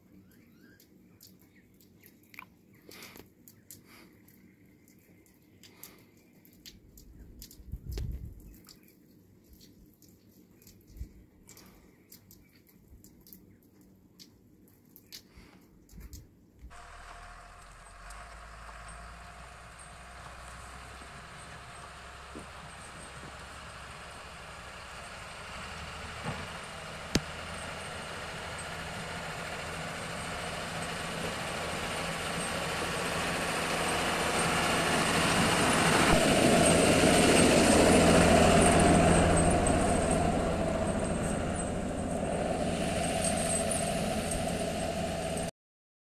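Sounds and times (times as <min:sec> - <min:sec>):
truck engine running: 0:16.7 - 0:45.5.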